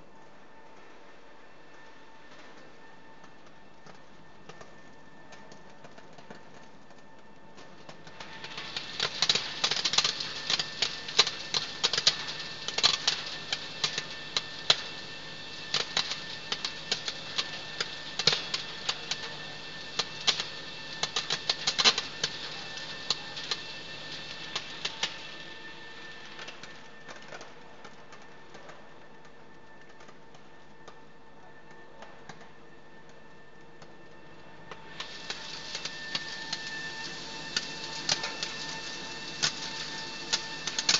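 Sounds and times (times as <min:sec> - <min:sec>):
machine hum: 0:00.0 - 0:40.9
rapid clicking and clatter: 0:03.3 - 0:25.3.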